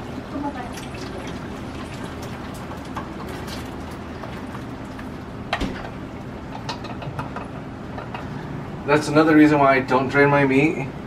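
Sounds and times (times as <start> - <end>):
pan knocking against pot: 6.5 - 8.3.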